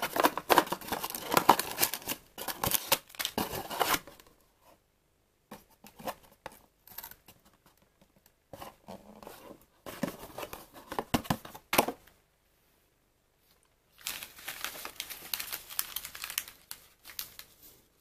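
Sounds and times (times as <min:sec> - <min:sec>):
tea sachets and box rustling: 0:00.0 - 0:04.2, 0:14.0 - 0:17.8.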